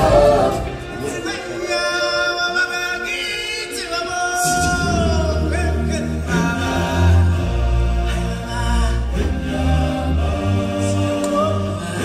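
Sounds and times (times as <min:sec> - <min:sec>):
singers in chorus: 0:00.0 - 0:12.0
deep bass: 0:04.4 - 0:12.0.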